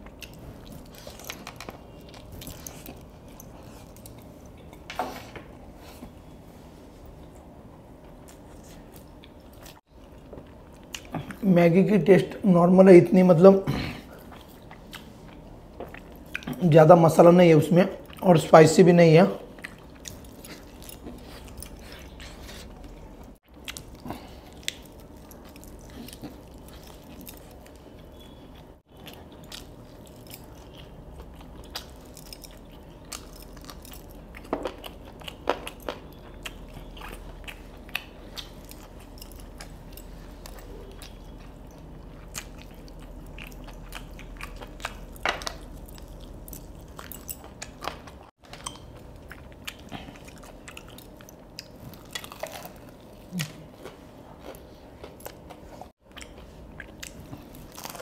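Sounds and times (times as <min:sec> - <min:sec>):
chewing crispy fried chicken: 0:19.3 - 0:58.0.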